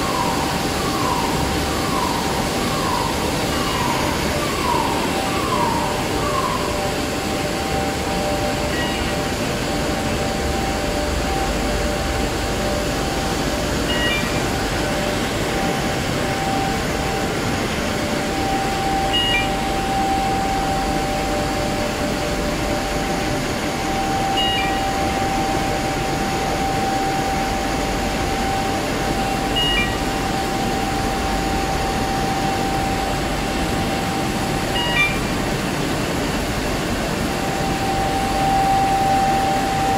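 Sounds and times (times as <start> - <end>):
steady hum tone: 0.0 - 39.9
short high beep: 13.9 - 14.4, 19.1 - 19.6, 24.4 - 24.8, 29.6 - 30.0, 34.8 - 35.2.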